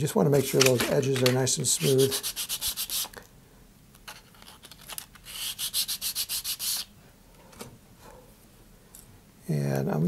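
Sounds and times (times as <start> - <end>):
sanding rasping strokes: 1.7 - 3.1, 5.3 - 6.9.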